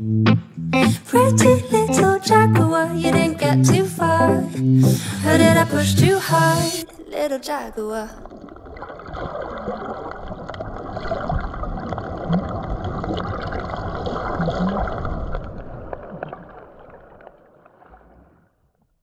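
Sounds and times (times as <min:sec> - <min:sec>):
underwater water sloshing: 0:06.8 - 0:18.8.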